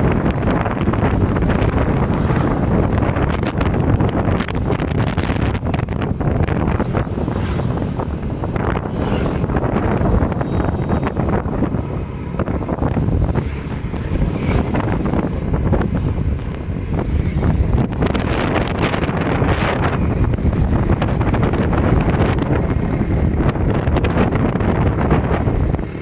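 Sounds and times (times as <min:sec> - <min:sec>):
motorbike engine rumble: 0:00.0 - 0:26.0
wind buffeting microphone: 0:00.0 - 0:26.0.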